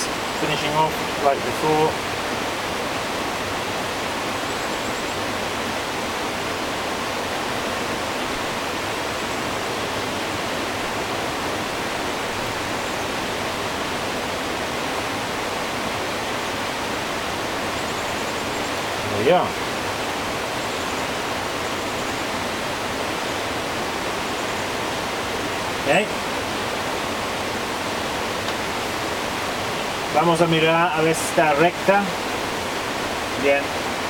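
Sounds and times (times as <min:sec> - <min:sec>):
steady rushing noise: 0:18.6 - 0:34.0.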